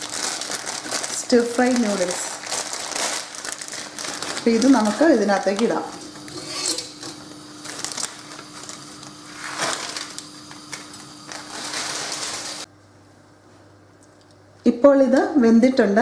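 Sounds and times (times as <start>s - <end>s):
plastic bag crinkling: 0.0s - 12.7s.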